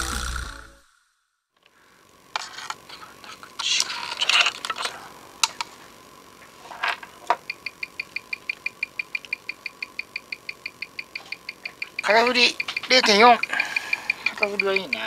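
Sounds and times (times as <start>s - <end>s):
watch clicks and knocks: 7.4s - 15.0s
watch ticking: 7.4s - 15.0s.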